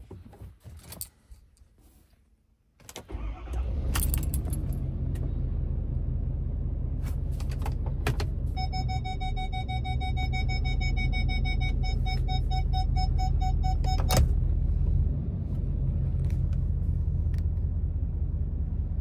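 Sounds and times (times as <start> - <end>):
diesel engine starting and idling: 2.9 - 19.0
keys jangling: 4.0 - 4.8.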